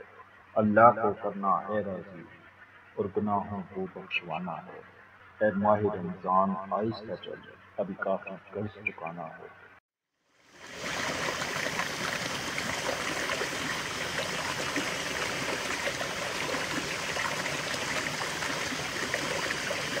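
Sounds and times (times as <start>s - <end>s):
stream splashing over rocks: 10.5s - 20.0s.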